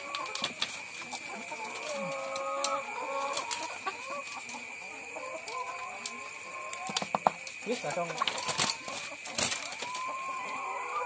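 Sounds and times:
hens clucking: 0.0s - 11.0s.

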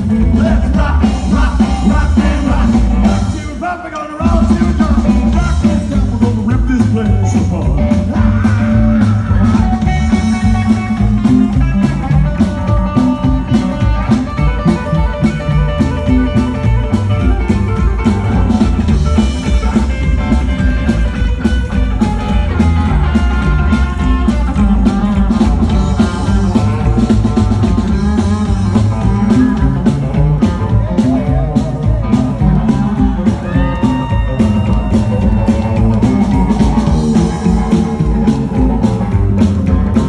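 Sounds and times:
rockabilly band playing: 0.0s - 40.0s.

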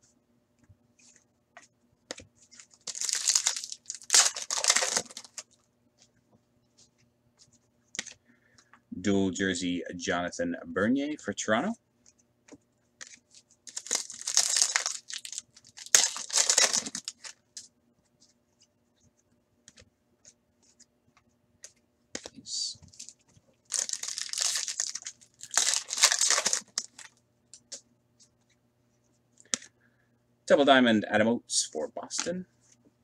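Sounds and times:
foil wrapper tearing and crinkling: 2.6s - 5.4s, 13.7s - 17.4s, 23.0s - 27.2s.

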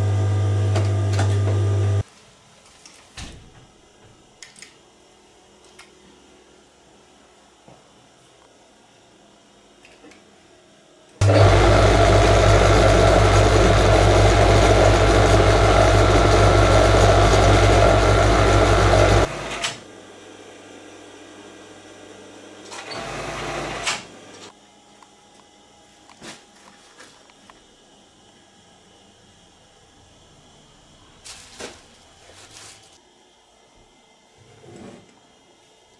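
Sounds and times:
industrial sewing machine running: 11.2s - 19.7s, 22.8s - 24.1s.

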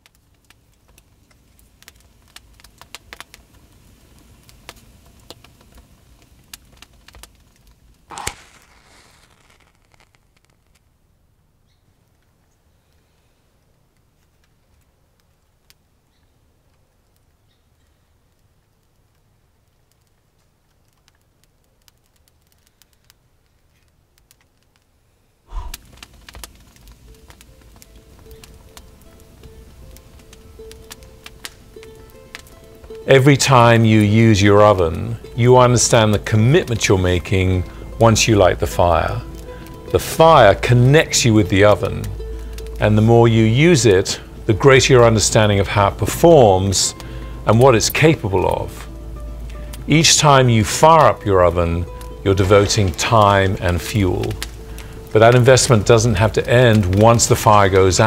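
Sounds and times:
wood fire crackling and popping: 0.0s - 58.0s
match struck and hissing: 8.1s - 10.9s, 25.5s - 28.8s
puff of breath: 25.5s - 26.0s, 47.0s - 47.4s
music: 25.9s - 58.0s.

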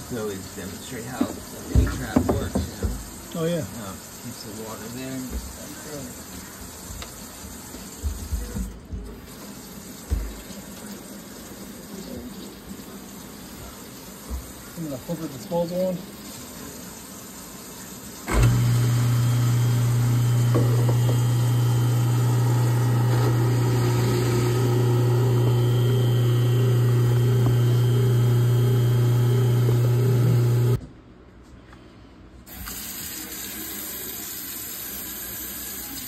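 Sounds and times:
tap water hissing into sink: 0.5s - 15.4s, 16.1s - 30.8s, 32.5s - 36.0s
water rushing through disposal: 12.7s - 30.8s
garbage disposal motor humming: 18.2s - 30.8s.

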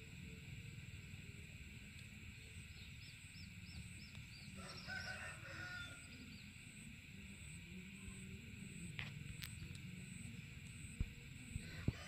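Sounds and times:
rooster crowing faintly: 4.5s - 6.3s, 11.5s - 12.0s.

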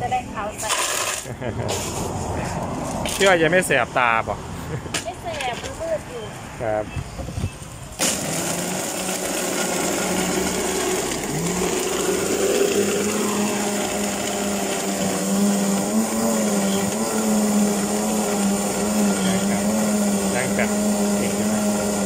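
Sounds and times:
electric blender running: 8.0s - 22.0s.

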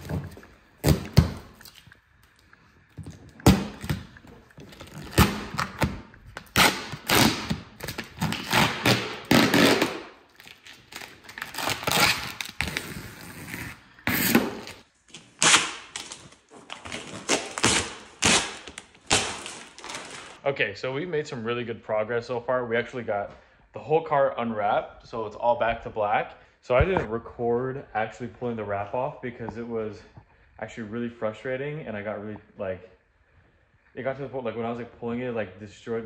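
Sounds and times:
vinyl film ripping off paint: 3.3s - 20.4s.

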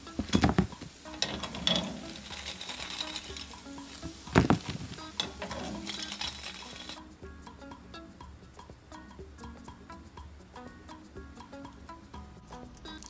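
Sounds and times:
food sizzling in hot oil: 0.0s - 7.0s
skimmer scraping against pan: 0.2s - 7.0s.

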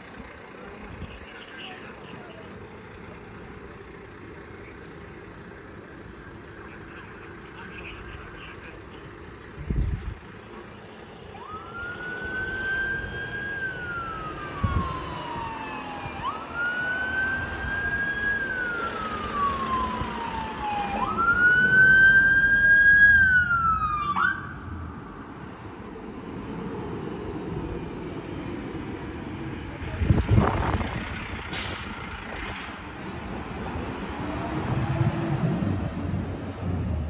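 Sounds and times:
emergency siren wailing: 11.2s - 25.3s.

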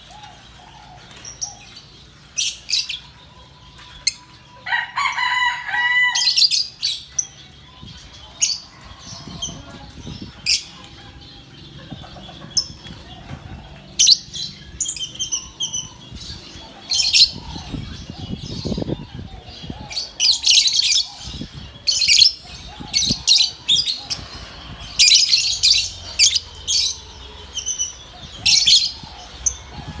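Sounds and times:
lovebirds chirping shrilly: 13.9s - 30.0s.

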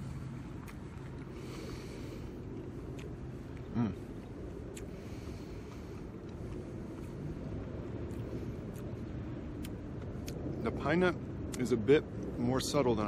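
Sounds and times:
man chewing food: 0.0s - 10.7s
low outdoor rumble: 0.0s - 13.0s.

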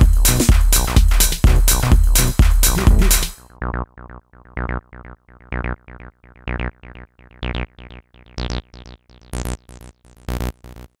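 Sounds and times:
deep bass hits: 0.0s - 3.4s
techno synth sequence: 0.0s - 10.9s.

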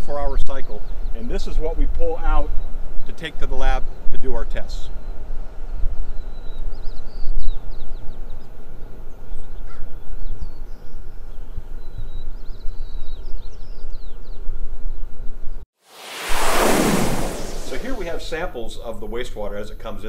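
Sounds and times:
steady low rumble: 15.9s - 18.3s.

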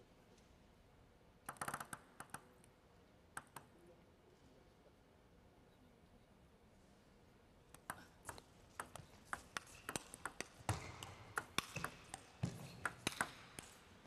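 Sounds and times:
table tennis ball clicks: 1.5s - 2.5s, 7.8s - 13.8s.

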